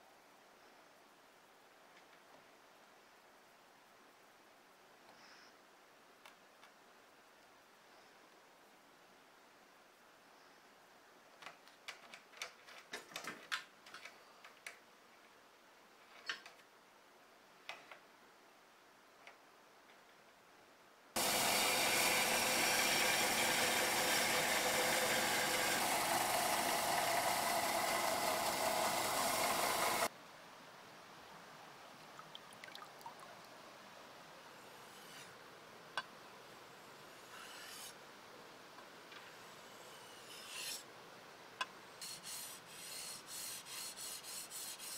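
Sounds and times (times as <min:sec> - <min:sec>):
belt sander grinding metal: 0:21.2 - 0:30.1
blade scraping on whetstone: 0:34.8 - 0:35.4, 0:37.2 - 0:38.0, 0:39.5 - 0:40.8, 0:42.0 - 0:44.9.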